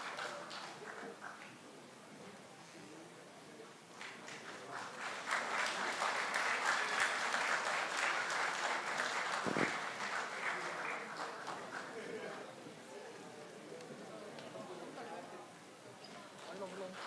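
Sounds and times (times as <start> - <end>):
audience applauding: 0.0 - 1.5, 4.0 - 12.5.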